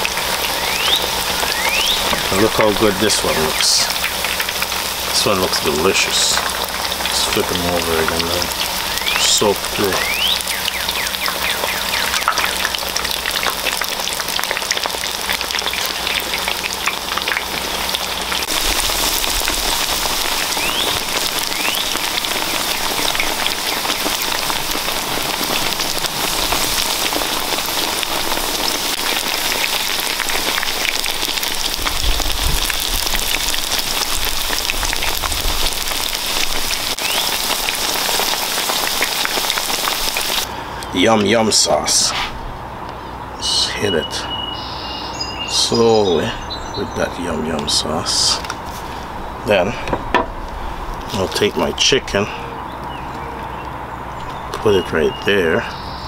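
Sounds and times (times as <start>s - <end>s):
patties sizzling in hot oil: 0.0s - 40.5s, 50.7s - 52.0s.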